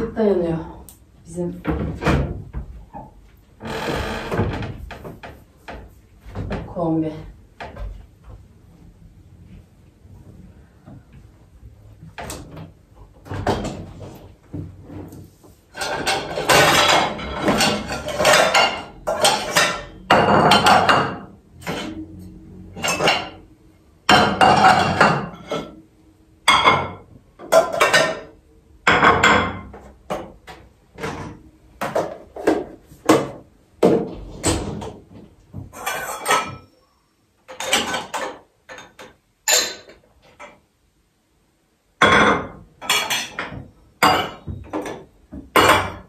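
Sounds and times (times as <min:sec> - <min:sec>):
dishes clattering in dishwasher racks: 0:15.7 - 0:23.4, 0:24.1 - 0:25.8, 0:26.5 - 0:30.4, 0:35.6 - 0:36.7, 0:37.5 - 0:40.6, 0:42.0 - 0:46.0.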